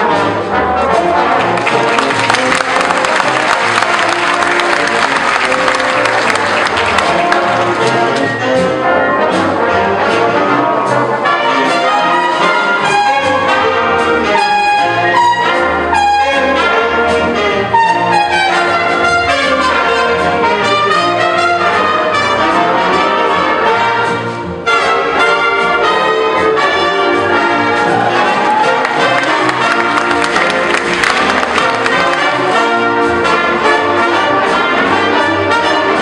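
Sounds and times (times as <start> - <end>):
upright bass: 0.0 - 24.7, 26.0 - 36.0
big band playing: 0.0 - 36.0
brass section: 0.0 - 36.0.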